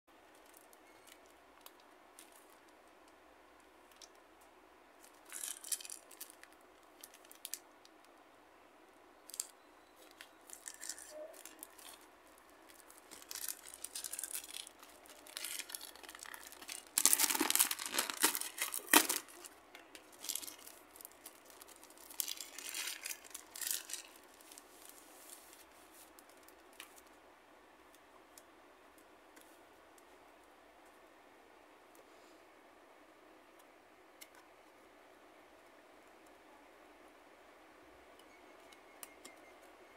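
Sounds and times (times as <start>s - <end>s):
wrapping tearing and crinkling: 5.0s - 7.6s, 9.3s - 27.1s.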